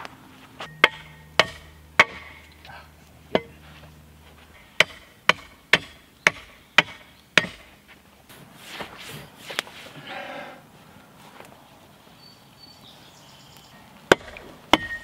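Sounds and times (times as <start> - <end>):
hatchet chopping wood: 0.7 - 2.5, 3.3 - 3.6, 4.8 - 7.8, 14.1 - 15.0.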